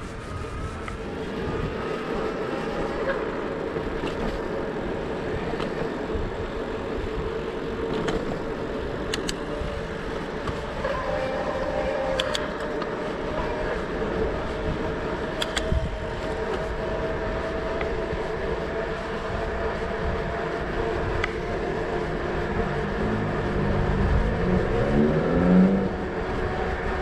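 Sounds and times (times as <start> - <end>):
tyre and wind rumble: 0.0 - 27.0
bicycle clicks and rattles: 3.0 - 10.8, 12.0 - 13.4, 15.1 - 22.0.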